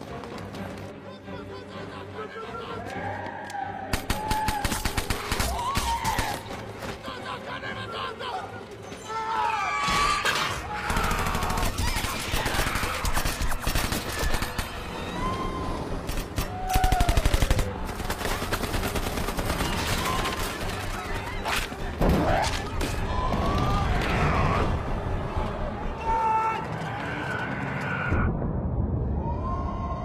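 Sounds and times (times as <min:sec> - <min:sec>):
people shouting: 0:01.5 - 0:17.8, 0:19.7 - 0:28.3
people screaming: 0:05.4 - 0:06.5, 0:09.0 - 0:17.7, 0:19.7 - 0:28.4, 0:29.0 - 0:30.0.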